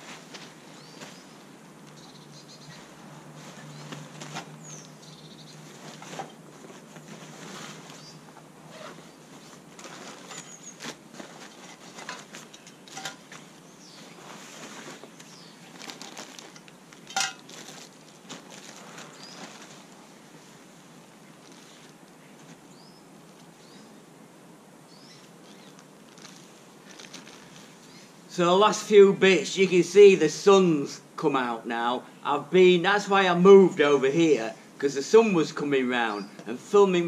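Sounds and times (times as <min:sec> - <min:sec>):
nylon stuff sack rustling: 0:00.0 - 0:22.7, 0:25.4 - 0:28.0
plastic bags rustling: 0:02.7 - 0:22.6, 0:25.4 - 0:28.0.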